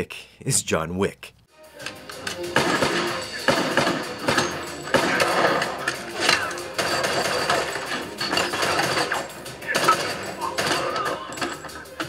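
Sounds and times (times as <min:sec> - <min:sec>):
action film soundtrack: 0:01.5 - 0:12.0
gunshots and sharp hits: 0:02.5 - 0:11.1.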